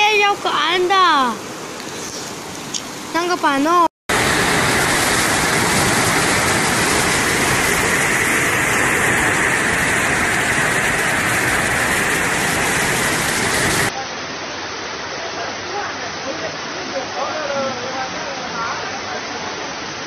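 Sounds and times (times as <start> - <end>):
floodwater rushing: 0.0 - 15.6.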